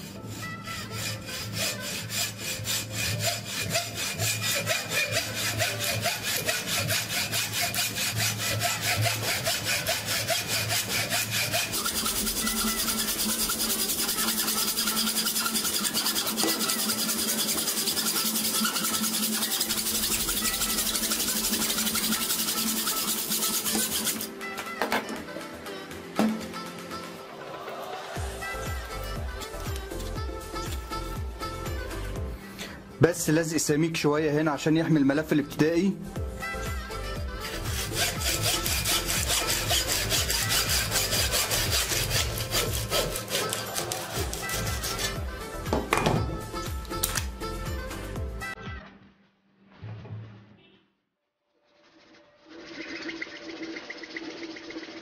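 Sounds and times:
hacksaw cutting metal: 0.0 - 24.4, 37.4 - 45.3.

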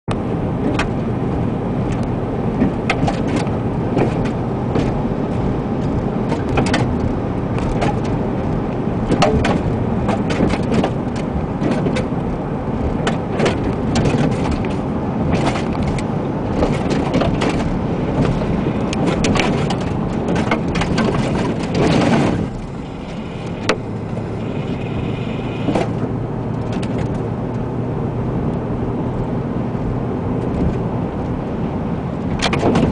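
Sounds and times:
wind buffeting car: 0.1 - 32.9
debris ticking against car: 2.6 - 22.9.

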